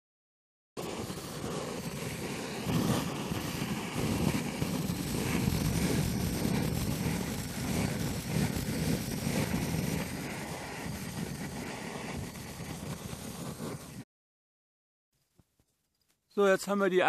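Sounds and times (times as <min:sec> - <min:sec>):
gas torch roaring: 0:00.8 - 0:14.0.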